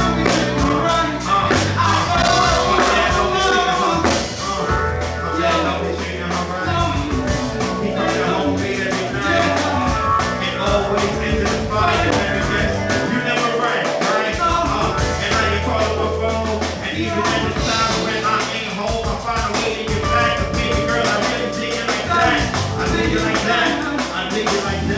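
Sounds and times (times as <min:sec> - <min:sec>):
drum hits: 0:00.0 - 0:05.5, 0:17.2 - 0:24.9
deep bass notes: 0:00.0 - 0:24.9
vocals into microphones: 0:00.0 - 0:24.9.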